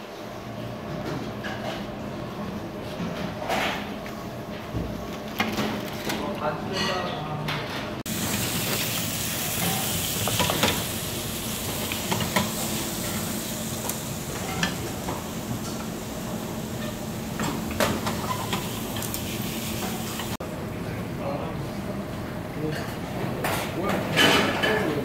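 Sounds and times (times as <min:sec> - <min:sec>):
food sizzling in pans: 0:08.1 - 0:20.4
spatulas scraping and clicking: 0:13.8 - 0:15.9, 0:17.4 - 0:20.4.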